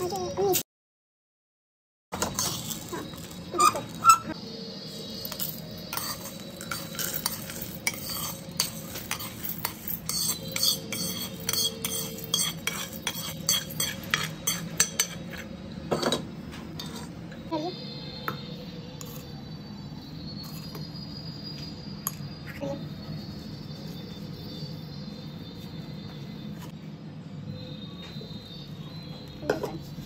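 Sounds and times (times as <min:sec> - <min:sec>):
ladle scraping a metal wok: 0:05.3 - 0:15.4, 0:16.8 - 0:17.2.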